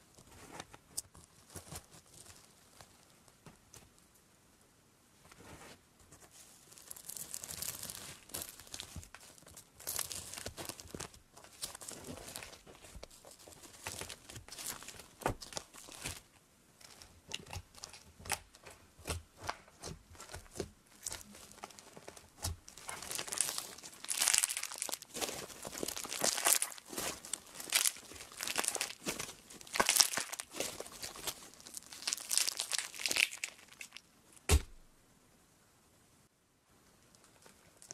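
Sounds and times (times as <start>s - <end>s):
slime crackling and squelching: 6.3s - 34.6s, 37.1s - 37.9s.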